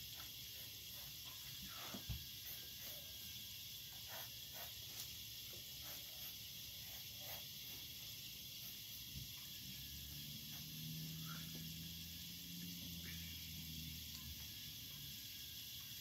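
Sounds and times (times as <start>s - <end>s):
steady background hiss: 0.0s - 16.0s
marker scratching on paper: 0.2s - 1.2s, 3.9s - 5.1s, 5.8s - 7.9s.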